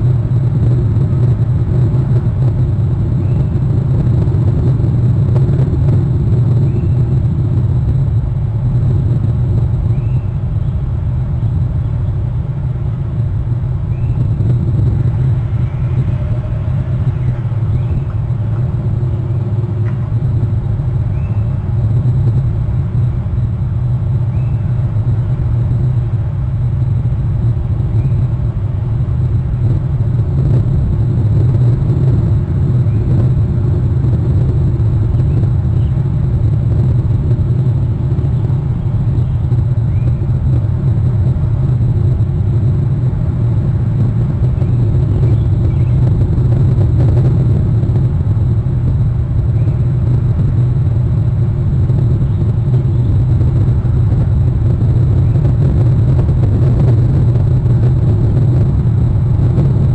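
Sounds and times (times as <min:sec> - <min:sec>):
wind buffeting microphone: 0:00.0 - 0:59.9
faint high chirps: 0:09.9 - 0:10.4, 0:21.0 - 0:21.6, 0:24.3 - 0:24.8.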